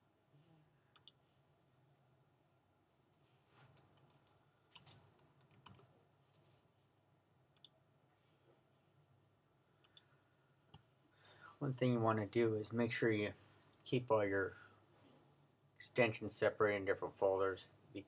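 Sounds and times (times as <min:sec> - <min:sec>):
keyboard typing: 0:03.7 - 0:06.4.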